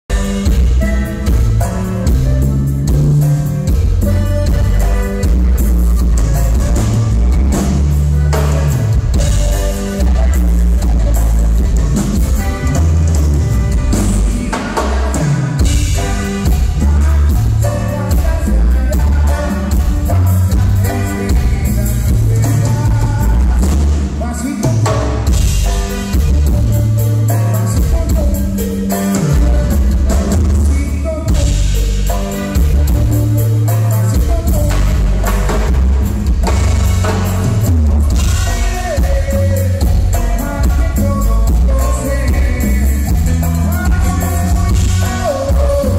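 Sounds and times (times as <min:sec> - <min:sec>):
electric bass: 0:00.0 - 0:45.9
button accordion: 0:00.1 - 0:45.9
congas: 0:00.1 - 0:45.9
drum kit beat: 0:00.1 - 0:45.9
person singing: 0:13.7 - 0:35.9, 0:36.5 - 0:45.9.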